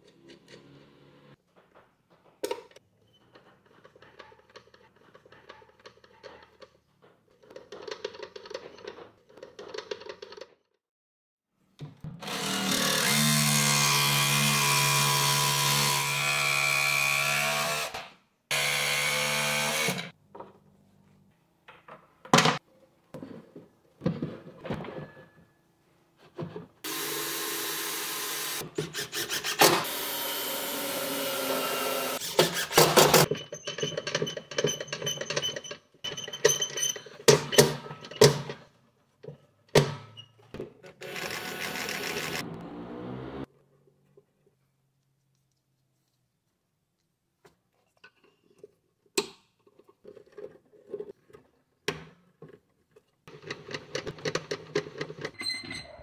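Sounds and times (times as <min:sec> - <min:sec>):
jigsaw cutting wood: 0:12.2 - 0:20.1, 0:26.9 - 0:33.3, 0:41.0 - 0:42.6.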